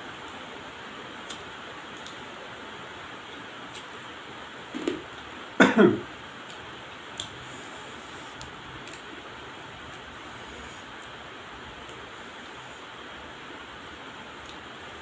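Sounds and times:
steady hiss: 5.3 - 15.0
person coughing: 5.6 - 6.1.

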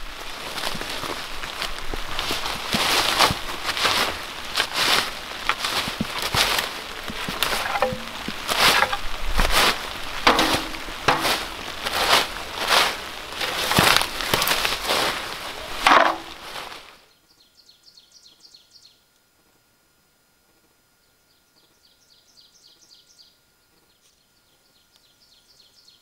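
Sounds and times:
shovel scraping through leaves and soil: 0.1 - 17.0.

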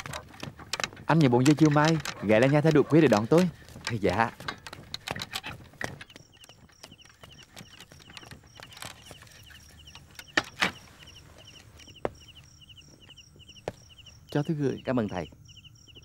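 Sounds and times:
insects chirping: 0.0 - 16.0.

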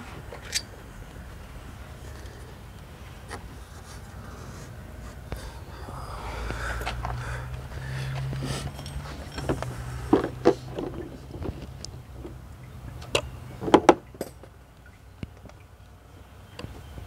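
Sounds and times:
metal bolts clicking and clinking: 0.3 - 0.7, 8.2 - 11.6, 13.0 - 14.5.

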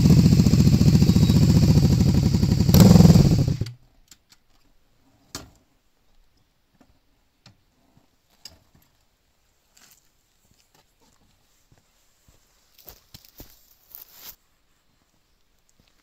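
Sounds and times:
motorcycle engine running loud: 0.0 - 3.7.

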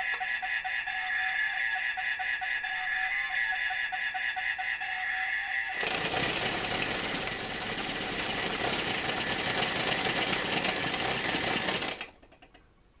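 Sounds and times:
toy engine sound effect: 0.0 - 12.2.

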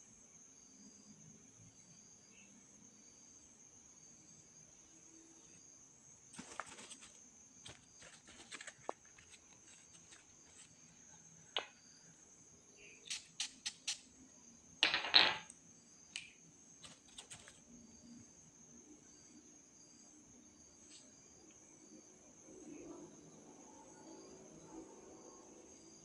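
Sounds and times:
high insect chirring: 1.7 - 18.4.

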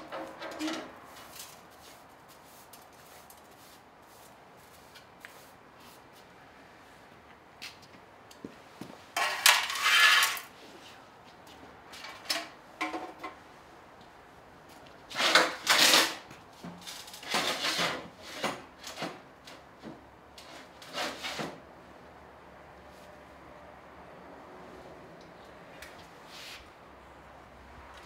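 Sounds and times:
tools scraping and rattling: 0.0 - 1.8, 9.1 - 10.6, 15.1 - 21.6.

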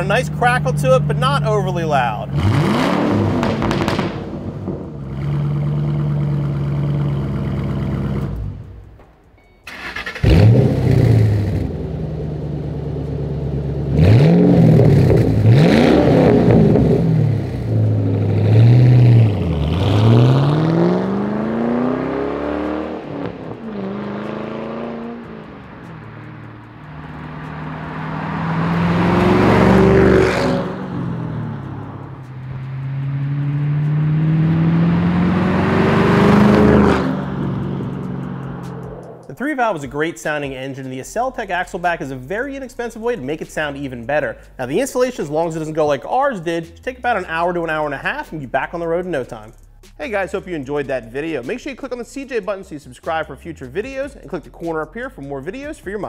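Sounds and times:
car engine revving: 0.0 - 9.0, 9.7 - 39.4
car engine idling: 0.0 - 15.8, 16.4 - 39.3.

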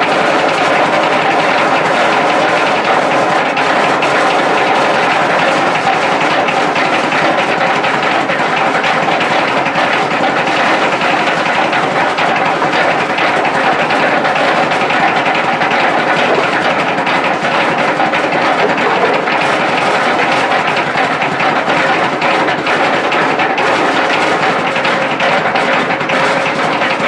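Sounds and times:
pulping machine mechanical noise: 0.0 - 27.0
petrol engine drone: 13.6 - 25.7.

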